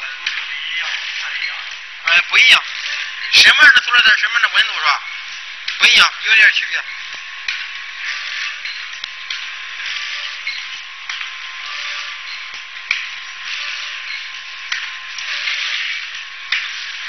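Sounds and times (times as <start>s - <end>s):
packaging machine hiss: 7.5s - 17.0s.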